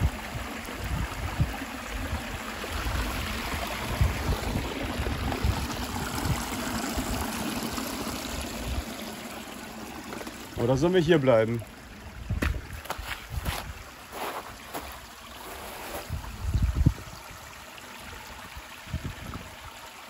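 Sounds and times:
small waterfall splashing: 0:00.0 - 0:20.0.

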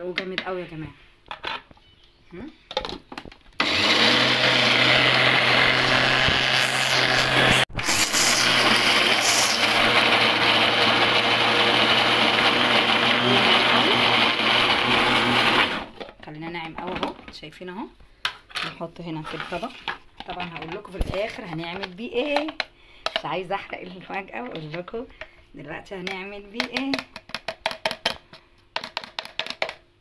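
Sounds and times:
blender motor running: 0:03.6 - 0:15.9.

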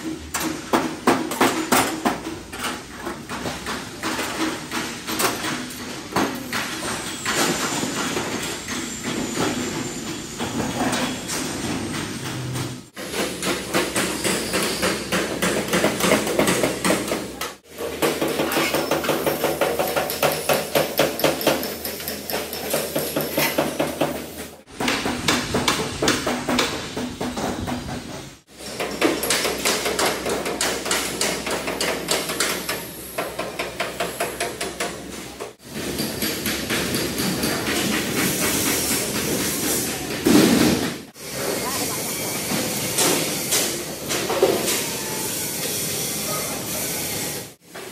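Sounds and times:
rapid hammer strikes on metal: 0:13.0 - 0:27.9, 0:28.7 - 0:35.0.

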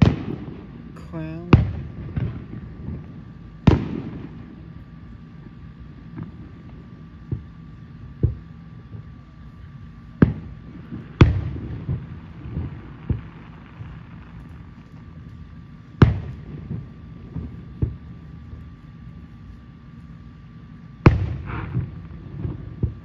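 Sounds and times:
distant firework shells bursting: 0:00.0 - 0:04.8, 0:10.1 - 0:18.6, 0:21.0 - 0:23.0.

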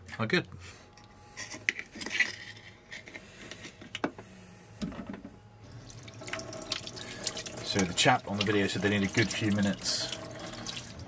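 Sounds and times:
knife scraping shells: 0:01.3 - 0:03.8.

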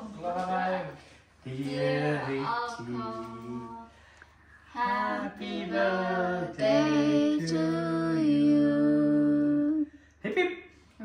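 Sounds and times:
voices singing unaccompanied: 0:01.4 - 0:04.0, 0:04.6 - 0:09.9.

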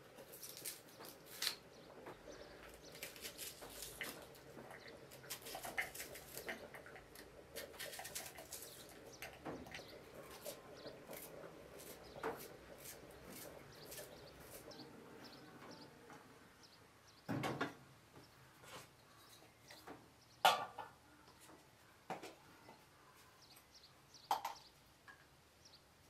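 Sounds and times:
knife slicing onion: 0:10.3 - 0:14.7.

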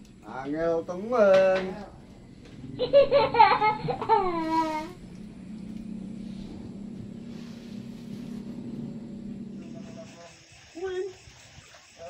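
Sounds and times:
low motor hum: 0:00.0 - 0:10.3
light hiss: 0:04.0 - 0:12.0.

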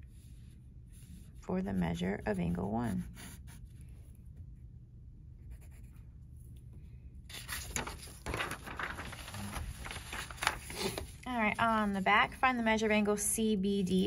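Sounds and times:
pen scratching on paper: 0:00.9 - 0:03.7, 0:05.5 - 0:06.0
paper rustling and flapping: 0:07.3 - 0:12.4.

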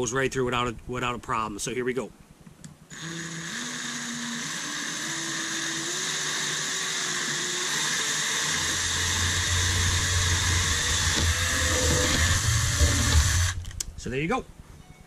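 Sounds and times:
drill bit cutting fiberglass: 0:02.9 - 0:13.7
cordless drill motor whine: 0:02.9 - 0:13.9
deep rumble: 0:08.7 - 0:14.8.

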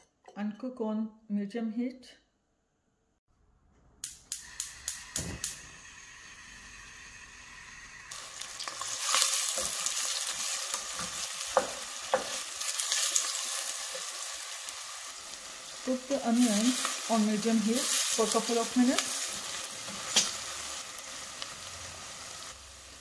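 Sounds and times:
onions sizzling in hot oil: 0:04.3 - 0:23.0
wooden spoon knocking pot: 0:11.0 - 0:12.4.

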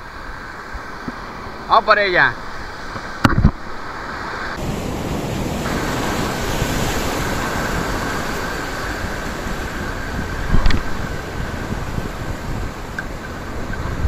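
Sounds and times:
surf washing over rocks: 0:00.0 - 0:14.0
wind buffeting microphone: 0:02.4 - 0:14.0.

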